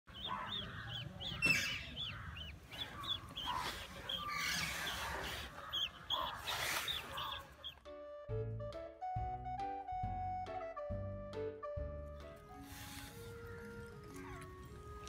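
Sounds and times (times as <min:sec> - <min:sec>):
birds chirping: 0:00.1 - 0:07.8, 0:12.8 - 0:15.0.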